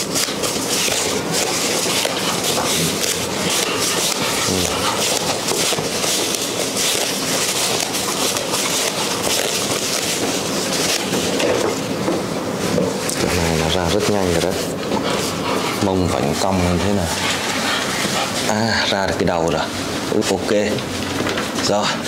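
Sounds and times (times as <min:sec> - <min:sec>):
tissue paper rustling and crackling: 0:00.0 - 0:11.6.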